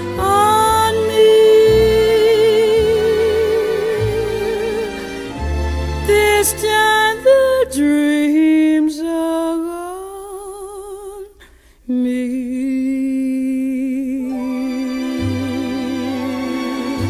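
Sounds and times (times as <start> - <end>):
singer holding notes with vibrato: 11.9 - 17.0.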